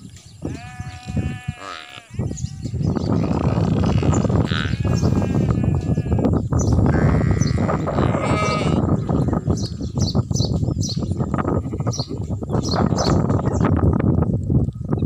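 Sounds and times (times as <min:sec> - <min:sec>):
sheep bleating: 0:00.4 - 0:06.3, 0:06.9 - 0:09.7.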